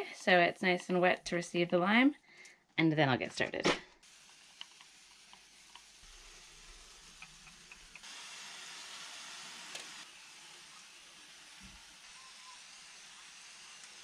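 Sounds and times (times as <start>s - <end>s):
hiss of water spray: 4.0s - 14.0s.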